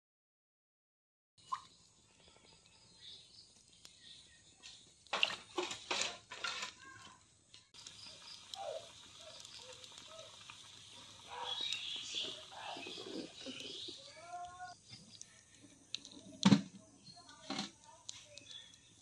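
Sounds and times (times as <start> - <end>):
water splashing in metal pot: 5.1 - 6.7, 7.8 - 14.8.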